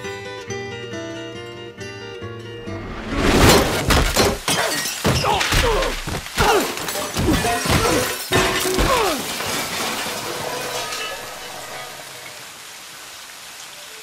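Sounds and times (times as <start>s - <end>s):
guitar song: 0.0s - 3.1s
heavy thuds: 2.7s - 4.5s
glass and crockery shattering: 3.3s - 12.3s.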